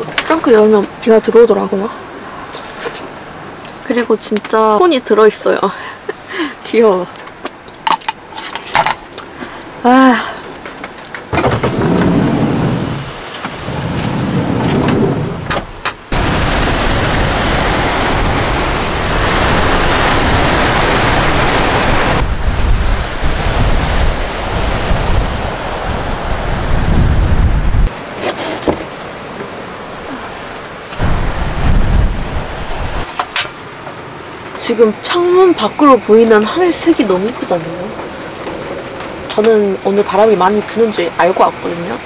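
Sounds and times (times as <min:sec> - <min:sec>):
rain falling: 0:00.0 - 0:28.2, 0:28.8 - 0:42.0
wind buffeting microphone: 0:11.3 - 0:28.0, 0:29.8 - 0:33.1.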